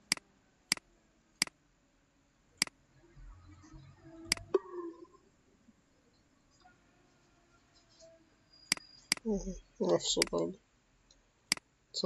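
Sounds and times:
computer mouse clicks: 0.0s - 0.8s, 4.3s - 4.5s, 8.7s - 9.2s.

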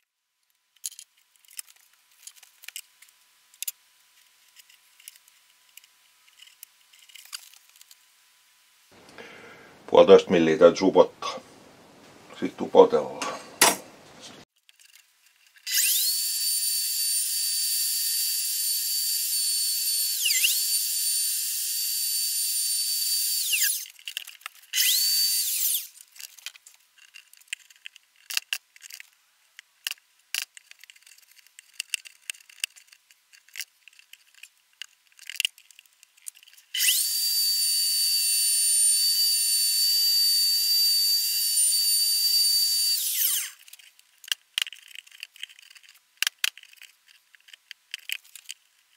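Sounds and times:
electric router whining: 15.7s - 23.9s, 24.8s - 25.9s, 36.8s - 43.6s.

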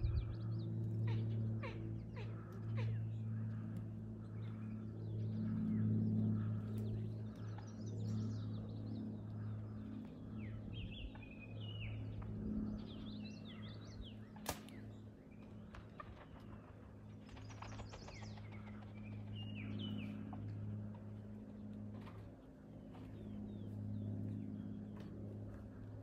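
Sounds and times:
songbirds chirping: 0.0s - 26.0s
steady low hum: 0.0s - 26.0s
bow shot crack: 14.4s - 14.8s.

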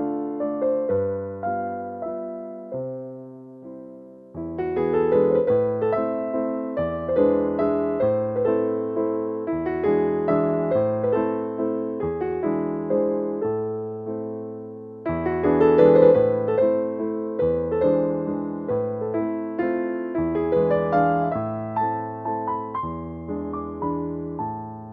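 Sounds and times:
piano music: 0.0s - 24.9s.

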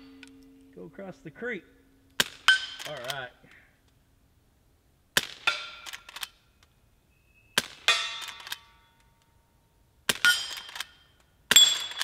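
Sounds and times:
bullet clanging on steel target: 2.2s - 2.9s, 7.6s - 8.8s, 10.1s - 12.0s.

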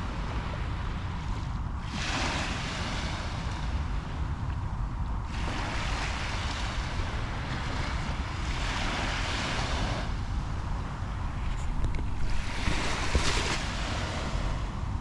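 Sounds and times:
wind rumble on microphone: 0.0s - 15.0s
surf washing onto sand: 11.4s - 14.7s.

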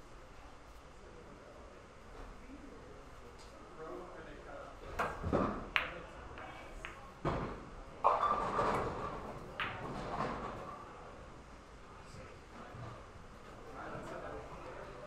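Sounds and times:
pool balls clicking and knocking: 4.9s - 11.0s
cue striking ball: 5.3s - 7.5s, 8.1s - 10.5s.

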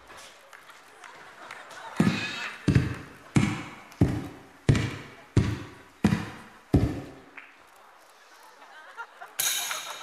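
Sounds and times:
heavy percussive thuds: 2.7s - 7.2s.

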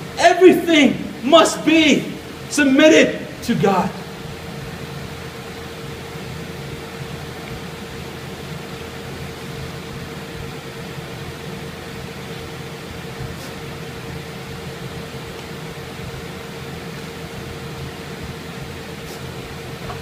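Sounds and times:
constant hum: 0.0s - 20.0s
low rumble and hiss: 0.0s - 20.0s.

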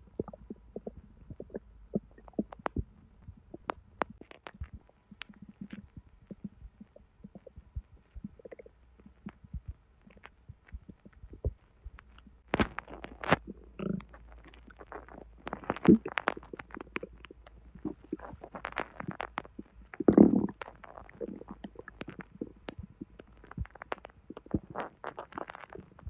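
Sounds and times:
crackling pops from intestines: 0.0s - 26.0s
bowel gurgles: 12.6s - 26.0s.

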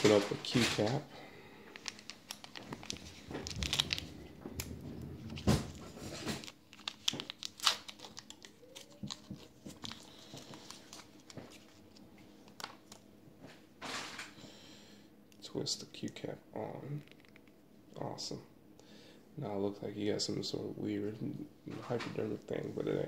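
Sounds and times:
paper and plastic packet tearing: 1.7s - 13.0s.

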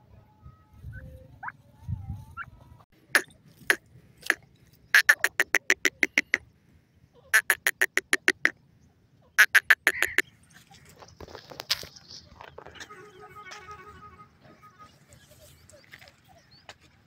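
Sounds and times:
bird calling harsh notes: 3.1s - 6.4s, 7.3s - 8.6s, 9.3s - 10.3s.

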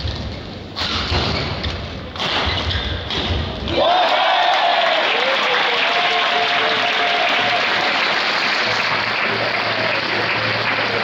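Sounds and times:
crowd applauding: 3.8s - 11.0s.

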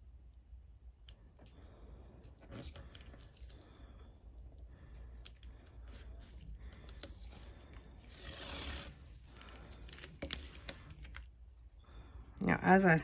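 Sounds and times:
tape ripping off roll: 6.8s - 11.2s.

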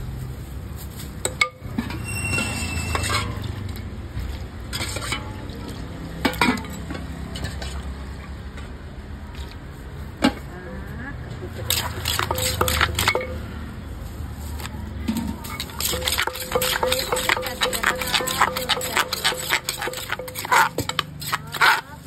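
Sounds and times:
metal spoon scraping and stirring: 1.3s - 3.9s, 4.6s - 7.9s, 11.6s - 13.5s, 14.6s - 22.0s.

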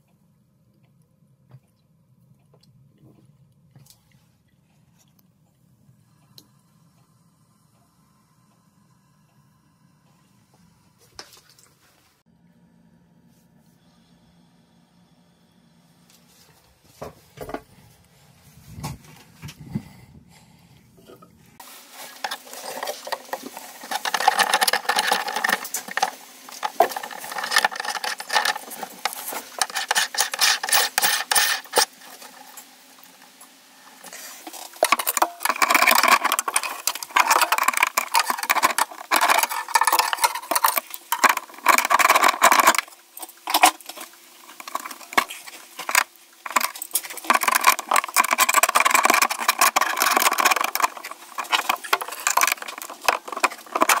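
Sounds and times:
metal scraping and clinking: 22.0s - 54.0s.

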